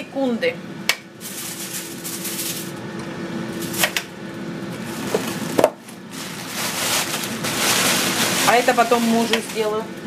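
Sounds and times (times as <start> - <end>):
steady hum: 0.0 - 10.0
plastic bag rustling: 1.2 - 2.8, 4.8 - 9.9.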